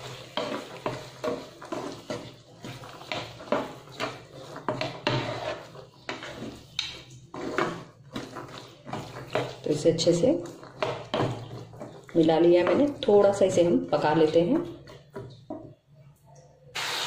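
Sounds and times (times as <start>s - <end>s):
spatula scraping pan: 0.0s - 15.5s.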